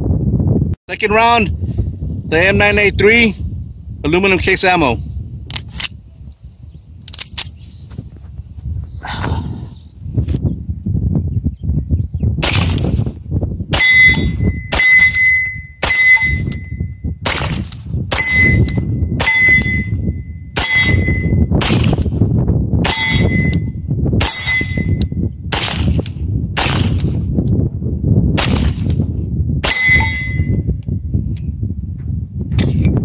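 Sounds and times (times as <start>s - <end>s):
wind rumble on microphone: 0.0s - 33.0s
pistol shots: 12.4s - 13.0s, 17.2s - 18.5s, 21.6s - 22.1s, 25.5s - 27.2s, 28.4s - 29.0s
steel target ringing ding: 13.8s - 17.0s, 18.2s - 21.5s, 22.9s - 23.7s, 24.3s - 25.1s, 29.7s - 30.7s.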